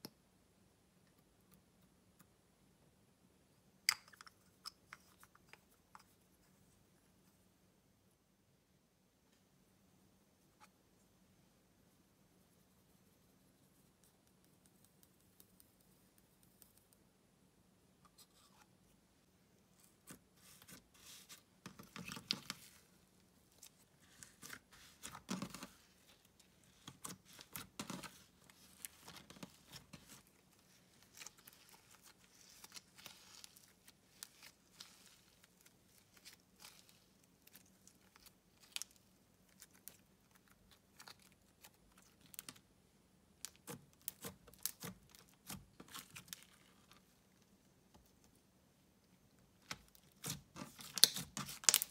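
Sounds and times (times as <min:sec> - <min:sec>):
slime crackling and popping: 0:50.2 - 0:51.9.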